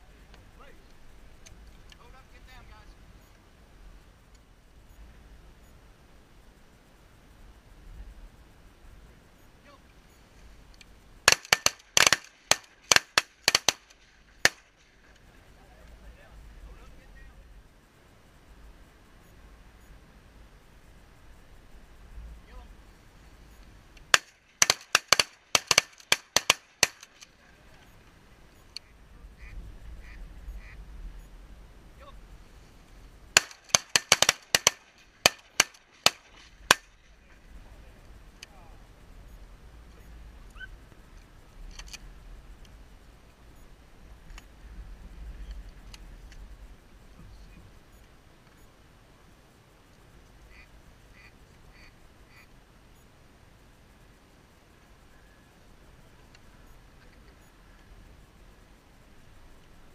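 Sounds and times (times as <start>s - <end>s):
shotgun shots: 11.2s - 14.9s, 24.1s - 27.3s, 33.4s - 37.0s
faint duck quacks: 28.6s - 31.3s, 40.5s - 40.8s, 50.4s - 52.6s.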